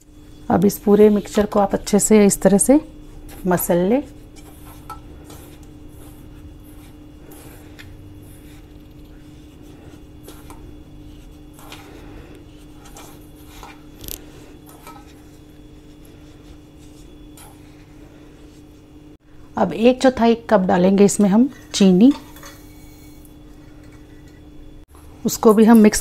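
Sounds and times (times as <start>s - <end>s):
faint steady hum: 0.0s - 26.0s
fingers rubbing flour in bowl: 0.6s - 18.9s.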